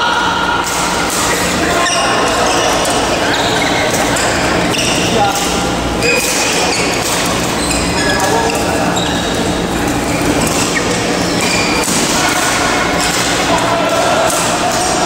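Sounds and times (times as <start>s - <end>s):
murmur of voices: 0.0s - 15.0s
shoes squeaking on court: 0.9s - 13.4s
rackets hitting shuttlecocks: 8.2s - 15.0s.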